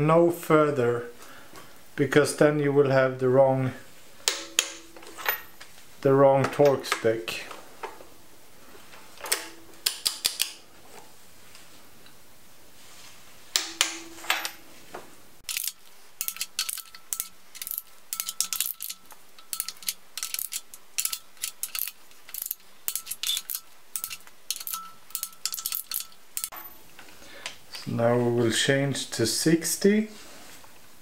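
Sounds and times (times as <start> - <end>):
torque wrench clicks: 15.5 - 26.5
wrench ratchet ticking: 15.5 - 26.5.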